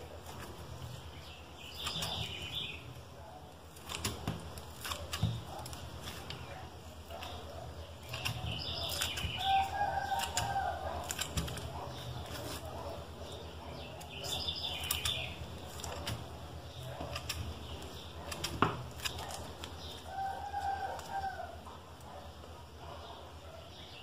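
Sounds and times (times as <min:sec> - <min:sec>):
sticky slime rustling: 0:00.0 - 0:21.6
scissors snipping slime: 0:03.8 - 0:06.3, 0:07.2 - 0:12.7, 0:14.0 - 0:17.5.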